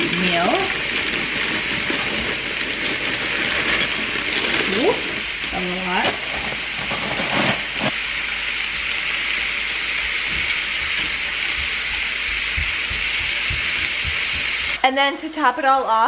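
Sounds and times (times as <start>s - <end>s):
food sizzling in frying pan: 0.0s - 14.8s.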